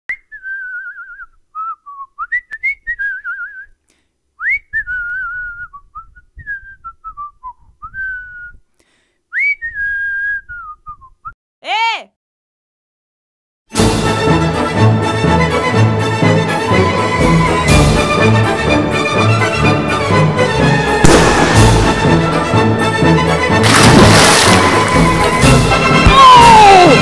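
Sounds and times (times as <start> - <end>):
person whistling a tune: 0.1 - 3.8, 4.4 - 8.7, 9.3 - 11.4.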